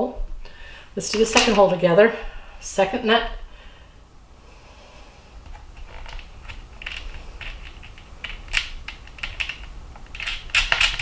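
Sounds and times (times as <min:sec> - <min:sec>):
small metal screw clicking and scraping: 0:05.8 - 0:11.0.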